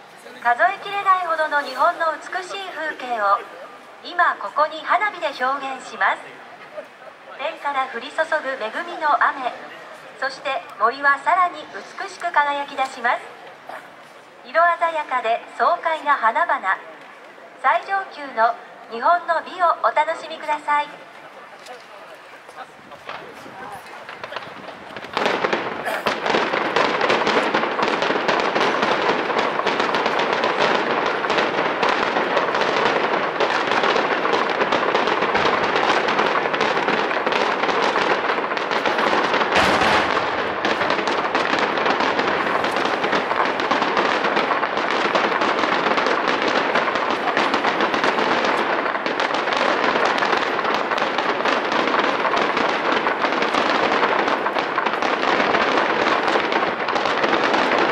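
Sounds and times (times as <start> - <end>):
fireworks crackling and popping: 0.0 - 57.9
loud firework bang: 23.0 - 57.9.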